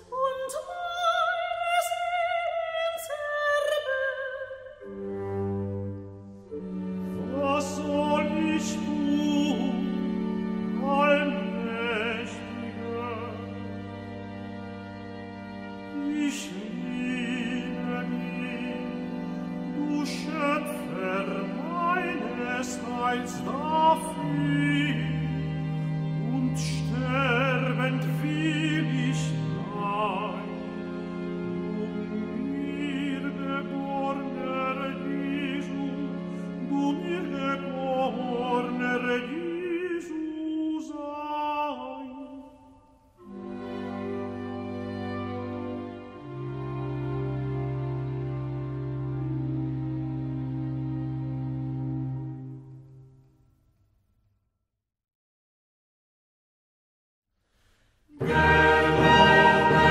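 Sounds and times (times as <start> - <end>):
orchestra strings: 0.0 - 53.3, 58.1 - 59.9
operatic singing: 6.5 - 14.6, 15.7 - 47.2, 58.1 - 59.9.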